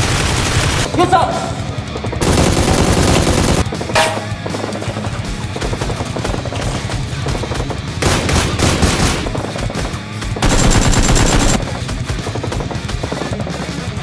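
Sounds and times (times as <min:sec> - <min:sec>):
rapid automatic gunfire: 0:00.0 - 0:00.9, 0:02.2 - 0:03.6, 0:08.0 - 0:13.8.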